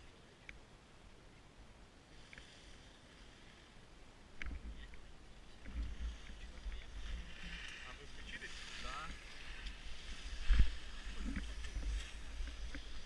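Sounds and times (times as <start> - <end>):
skis sliding over snow: 6.0 - 13.0.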